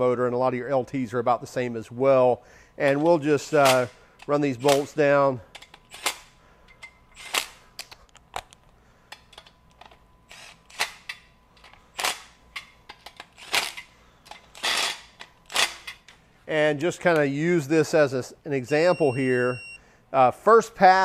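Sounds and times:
impact driver bursts: 0:07.2 - 0:07.6, 0:14.6 - 0:15.8.

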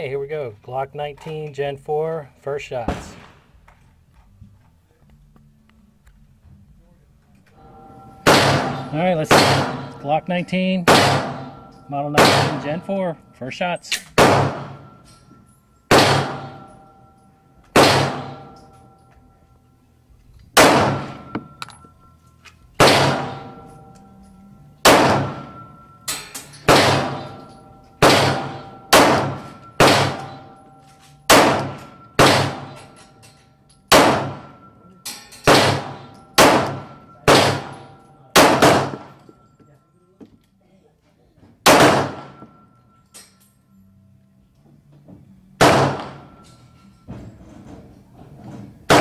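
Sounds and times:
pistol shots: 0:02.9 - 0:03.6, 0:08.2 - 0:10.1, 0:10.8 - 0:12.9, 0:13.9 - 0:15.1, 0:15.9 - 0:16.8, 0:17.7 - 0:18.7, 0:20.6 - 0:21.5, 0:22.8 - 0:24.0, 0:24.8 - 0:33.1, 0:33.9 - 0:34.7, 0:35.4 - 0:39.2, 0:41.6 - 0:42.6, 0:45.6 - 0:46.4.

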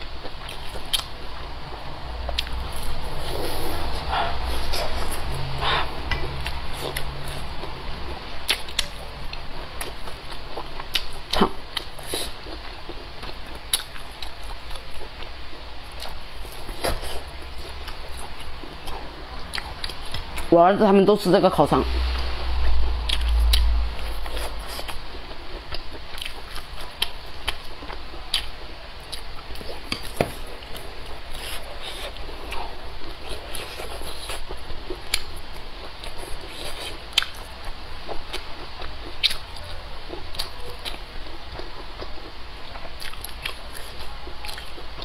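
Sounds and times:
close chewing with wet mouth clicks: 0:00.0 - 0:01.2, 0:02.3 - 0:07.8, 0:08.4 - 0:20.5, 0:22.6 - 0:45.0
low rumble: 0:21.8 - 0:24.7.

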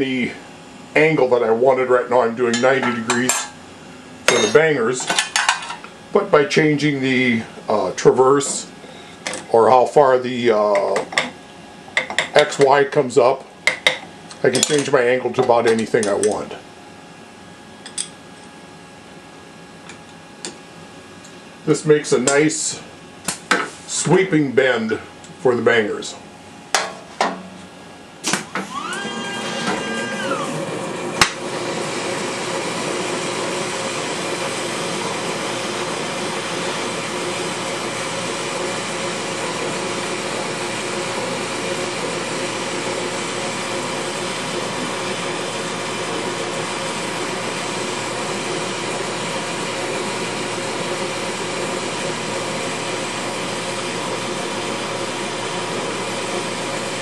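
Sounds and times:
faint machine hum: 0:00.0 - 0:57.0
mechanical whine: 0:28.2 - 0:32.3
burner flame hissing: 0:28.2 - 0:57.0.

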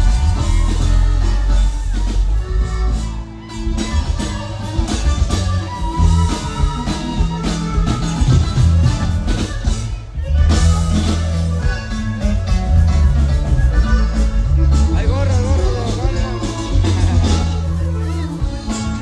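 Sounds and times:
live band with accordion melody: 0:00.0 - 0:19.0.

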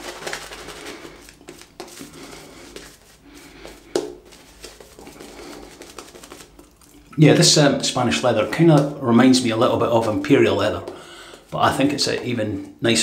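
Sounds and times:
shaving brush swishing lather: 0:00.0 - 0:06.9.

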